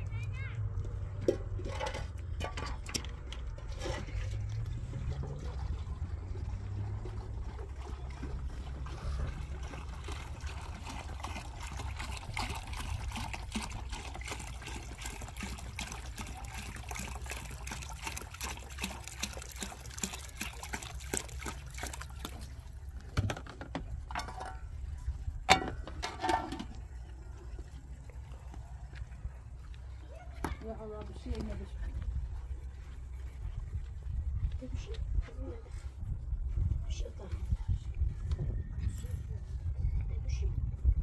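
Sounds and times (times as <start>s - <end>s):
liquid trickling and splashing: 1.8s - 34.9s
low rumble: 31.6s - 41.0s.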